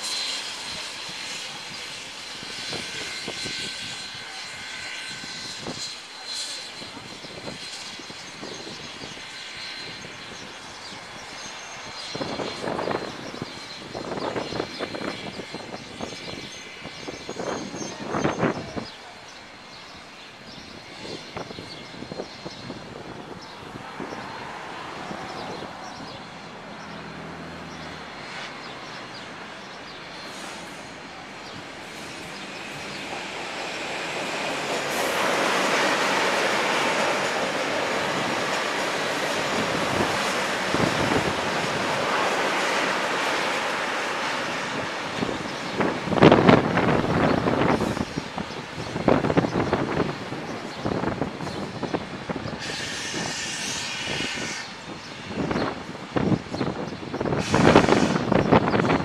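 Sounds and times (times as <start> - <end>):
steam exhaust beats: 0.0 - 17.6, 19.4 - 56.6, 57.2 - 59.0
steam locomotive rumble: 0.0 - 59.0
clicks of train: 28.2 - 48.8, 50.0 - 59.0.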